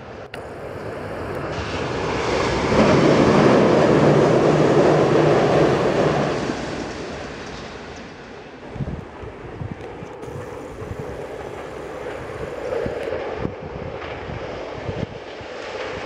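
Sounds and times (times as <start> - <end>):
electric train approaching: 0.0 - 14.8
wind buffeting microphone: 8.6 - 16.0.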